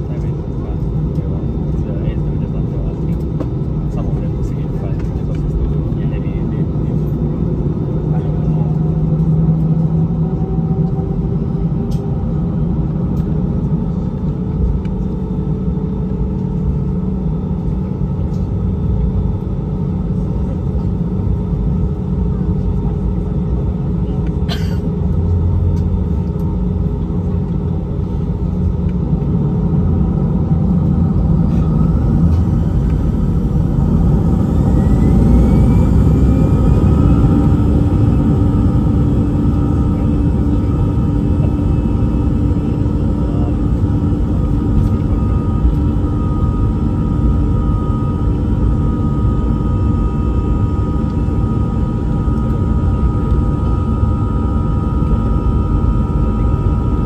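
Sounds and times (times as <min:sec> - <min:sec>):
jet engines rumbling: 0:00.0 - 0:57.0
engines spooling up whine: 0:29.5 - 0:55.8.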